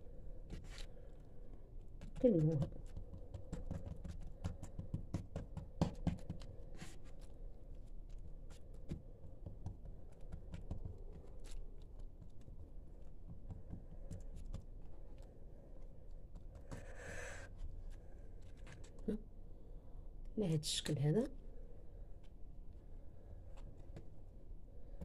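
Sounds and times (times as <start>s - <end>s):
hands sliding and dabbing dough: 2.9s - 19.0s.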